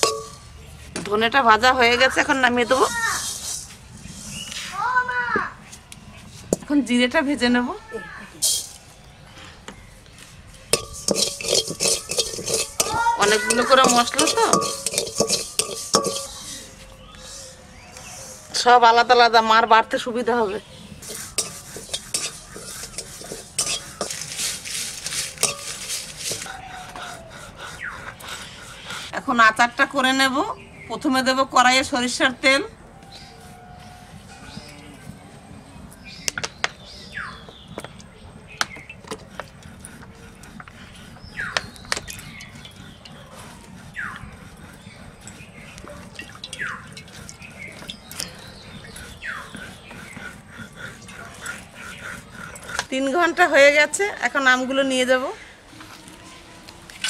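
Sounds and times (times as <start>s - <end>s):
metal spatula scraping wok: 0.0s - 0.5s, 2.6s - 4.8s, 8.4s - 8.8s, 10.7s - 18.6s, 20.7s - 26.5s.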